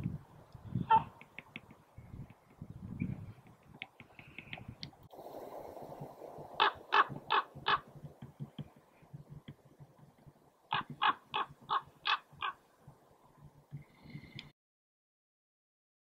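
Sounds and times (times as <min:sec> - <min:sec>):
raven harsh calls: 0:06.6 - 0:08.0, 0:10.7 - 0:12.6.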